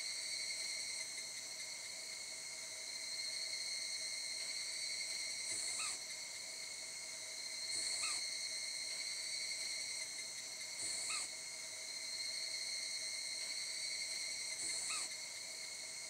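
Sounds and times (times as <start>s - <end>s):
high insect drone: 0.0s - 16.0s
bird alarm call: 5.6s - 6.0s, 7.8s - 8.2s, 10.8s - 11.3s, 14.7s - 15.1s.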